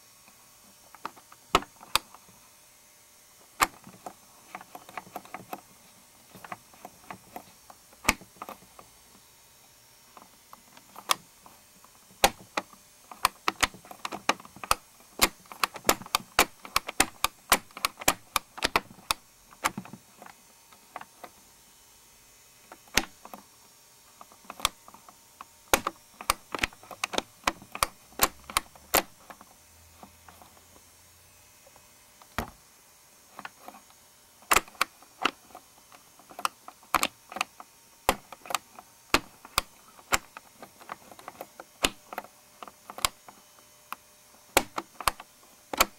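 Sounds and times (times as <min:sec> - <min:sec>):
plastic mechanism clicking: 0:01.0 - 0:02.2, 0:03.6 - 0:05.6, 0:06.3 - 0:08.8, 0:10.2 - 0:11.2, 0:12.2 - 0:21.4, 0:22.7 - 0:23.4, 0:24.2 - 0:30.6, 0:33.4 - 0:45.9.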